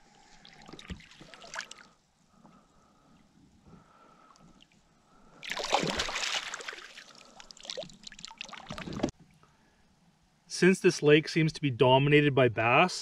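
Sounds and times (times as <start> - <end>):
water splashing: 5.4 - 9.1
water streaming off net: 5.4 - 9.1.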